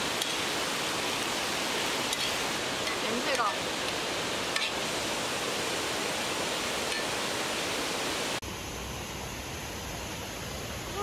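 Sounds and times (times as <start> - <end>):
stream rushing: 0.0 - 8.4.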